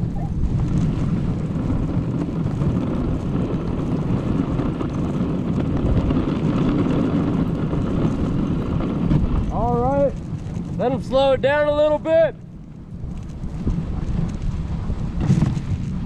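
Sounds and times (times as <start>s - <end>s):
sled runners sliding on snow: 0.0s - 16.0s.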